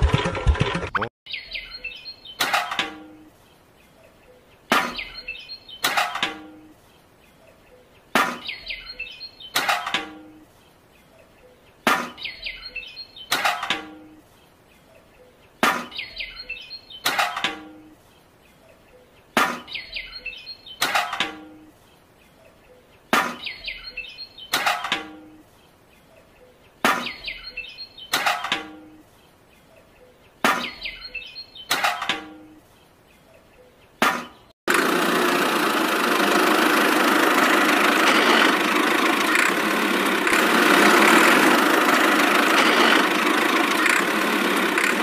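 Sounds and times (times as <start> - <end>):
bird-like chirps: 1.3 - 34.5
engine-like running sound: 34.7 - 45.0.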